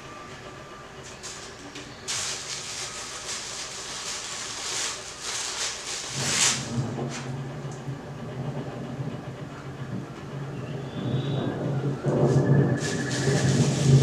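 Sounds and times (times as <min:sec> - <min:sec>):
packing material rustling: 0:02.1 - 0:06.8.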